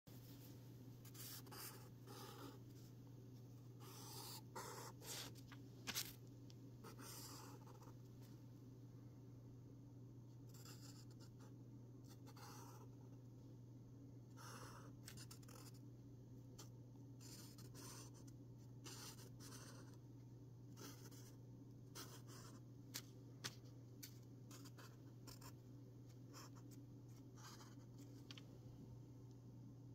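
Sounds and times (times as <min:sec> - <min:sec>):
pen scratching on paper: 0:01.0 - 0:02.7, 0:03.8 - 0:05.4, 0:06.8 - 0:08.0, 0:10.5 - 0:13.0, 0:14.3 - 0:15.8, 0:16.6 - 0:20.0, 0:20.8 - 0:22.6, 0:24.5 - 0:25.6, 0:26.3 - 0:28.2.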